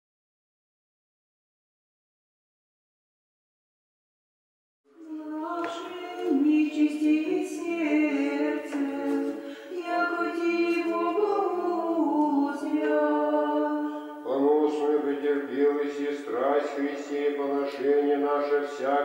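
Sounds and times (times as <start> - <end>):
unaccompanied choir chanting: 5.0 - 19.0.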